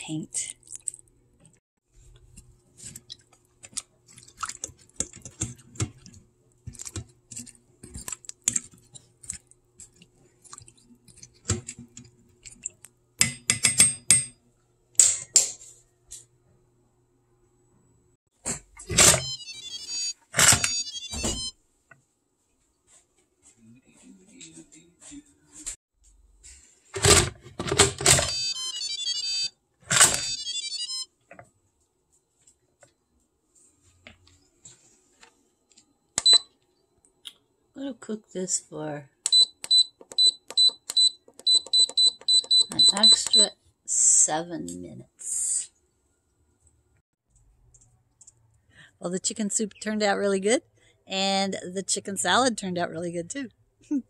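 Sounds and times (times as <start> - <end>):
electronic beeping jingle: 19.0 - 21.5, 28.2 - 29.5, 30.1 - 31.0.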